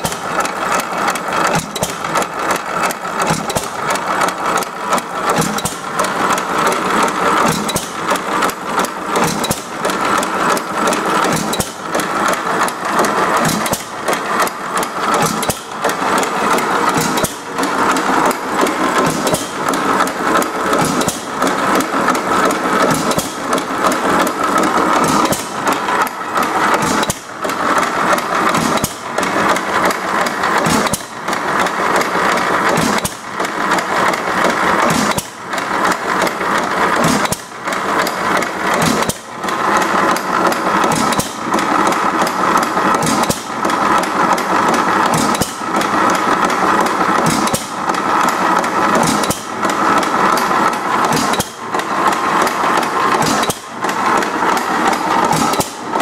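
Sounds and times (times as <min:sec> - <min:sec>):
engine mechanical clatter: 0:00.0 - 0:56.0.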